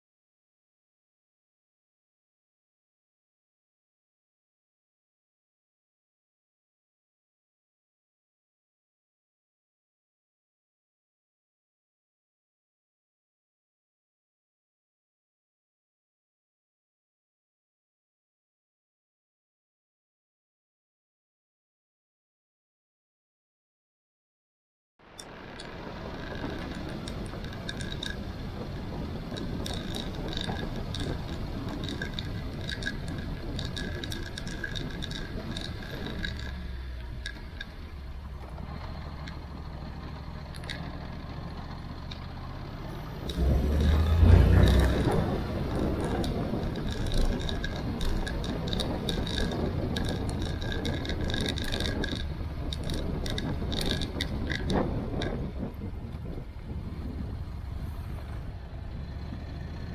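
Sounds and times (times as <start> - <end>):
motorcycle engine rumbling: 25.0 - 59.9
light ticking: 25.2 - 57.3.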